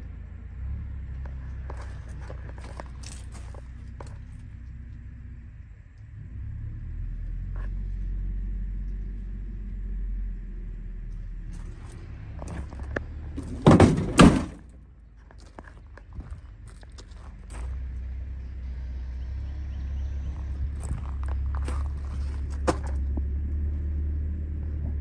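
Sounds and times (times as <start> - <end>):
low steady rumble: 0.0 - 25.0
truck door clunking shut: 13.4 - 14.7.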